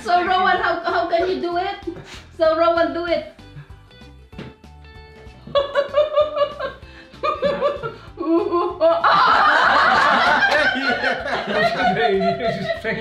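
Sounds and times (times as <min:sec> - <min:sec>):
people laughing: 0:00.0 - 0:01.6, 0:05.5 - 0:13.0.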